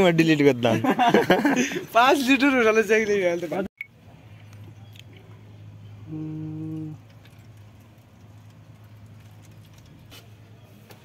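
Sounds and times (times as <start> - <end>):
low steady hum: 3.8 - 10.8.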